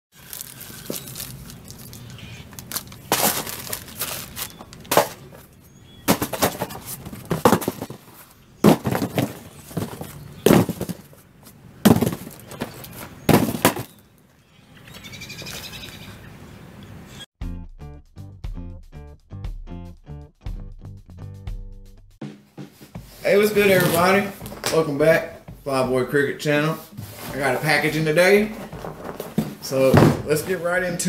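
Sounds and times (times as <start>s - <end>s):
boxes thudding on concrete: 3.1s - 5.4s, 6.0s - 11.2s, 11.8s - 14.0s, 23.6s - 24.8s, 28.4s - 30.6s.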